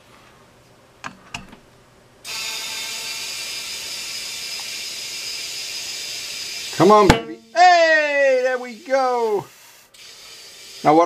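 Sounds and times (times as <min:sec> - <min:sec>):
compressed air hissing into tyre: 0:02.2 - 0:11.0.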